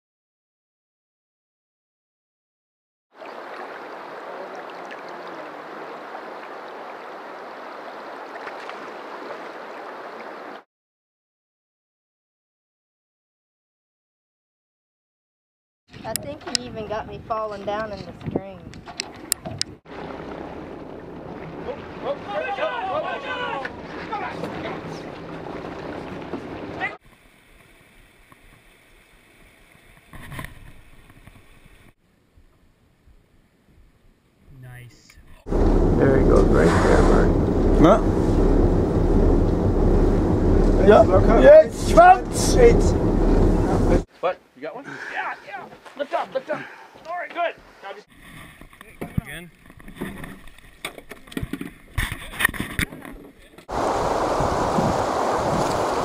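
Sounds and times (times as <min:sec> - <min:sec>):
stream water flowing: 0:03.1 - 0:10.6, 0:19.9 - 0:31.4, 0:53.7 - 0:56.0
water splashes and drips: 0:03.1 - 0:10.6, 0:19.0 - 0:31.4, 0:53.6 - 0:56.0
stream running over rocks: 0:03.2 - 0:10.6, 0:53.6 - 0:56.0
brief loud noise: 0:36.0 - 0:38.4.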